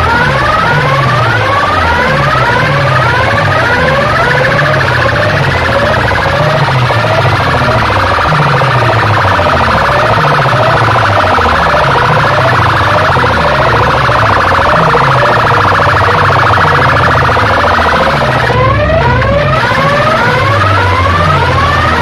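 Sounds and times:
electronic siren whoops: 0:00.0 - 0:22.0
falling bass sweeps: 0:00.0 - 0:22.0.

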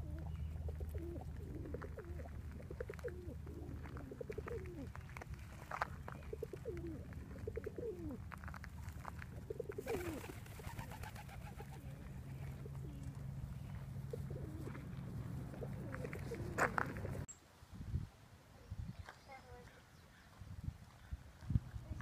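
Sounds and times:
pigeons cooing: 0:00.0 - 0:08.3, 0:09.0 - 0:17.3.

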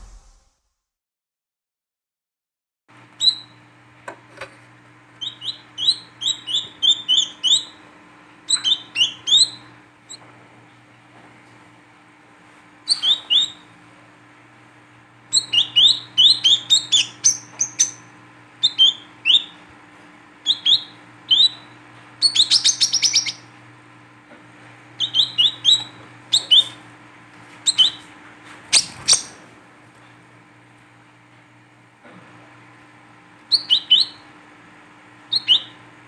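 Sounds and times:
bird chirping: 0:03.2 - 0:03.6, 0:05.2 - 0:07.8, 0:08.5 - 0:10.2, 0:12.9 - 0:13.7, 0:15.3 - 0:19.6, 0:20.4 - 0:23.5, 0:25.0 - 0:26.8, 0:27.6 - 0:28.0, 0:28.7 - 0:29.4, 0:33.5 - 0:34.3, 0:35.3 - 0:35.8
bird chittering: 0:05.2 - 0:07.8, 0:08.5 - 0:09.6, 0:12.9 - 0:13.6, 0:15.3 - 0:19.6, 0:20.4 - 0:23.5, 0:25.0 - 0:26.8, 0:27.7 - 0:28.0, 0:28.7 - 0:29.4, 0:33.5 - 0:34.2, 0:35.3 - 0:35.8.

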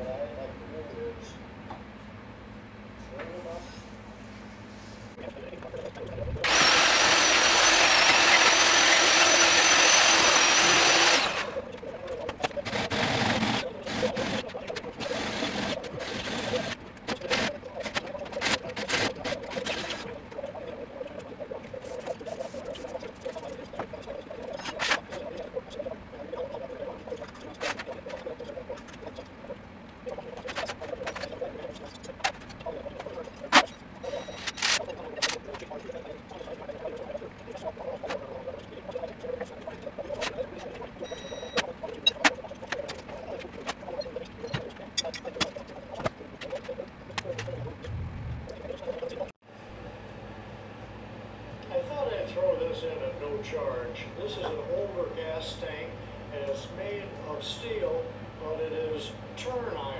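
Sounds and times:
faint continuous warble: 0:11.4 - 0:12.6, 0:13.6 - 0:49.4.

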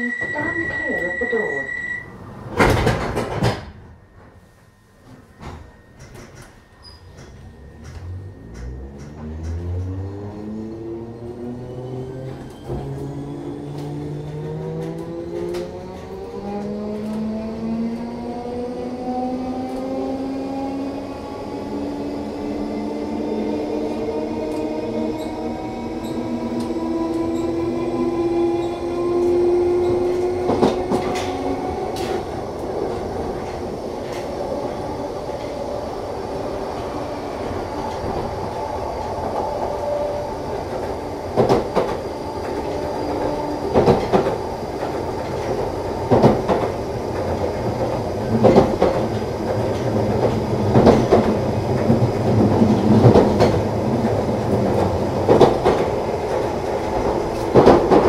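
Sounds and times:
train running hum with whine: 0:00.0 - 0:58.0
wheels clacking over rail joints: 0:40.6 - 0:58.0.

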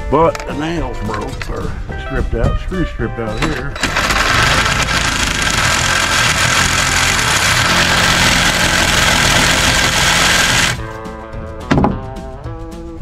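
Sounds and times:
reciprocating saw cutting wood: 0:03.8 - 0:10.8
sharp knock: 0:11.7 - 0:12.0.

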